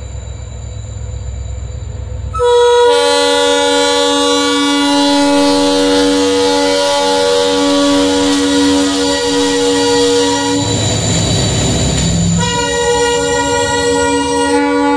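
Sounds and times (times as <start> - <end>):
diesel locomotive engine rumble: 0.0 - 14.9
locomotive horn blast: 2.3 - 10.8, 12.4 - 14.9.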